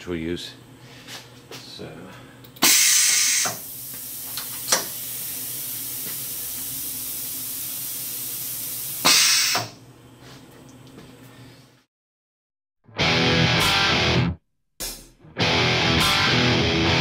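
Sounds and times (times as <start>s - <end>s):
short loud air blast: 2.6s - 3.7s, 9.0s - 9.8s
steady hiss of air: 2.6s - 9.7s.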